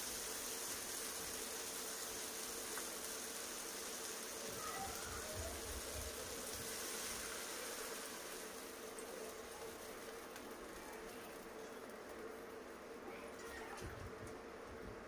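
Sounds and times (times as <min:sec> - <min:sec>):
water pouring into pan: 0:00.0 - 0:11.3
vegetables sizzling in oil: 0:00.0 - 0:13.8.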